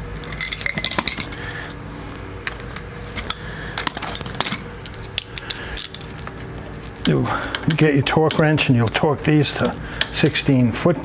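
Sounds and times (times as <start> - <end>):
hand tools clinking: 0.2 - 1.4, 7.0 - 10.3.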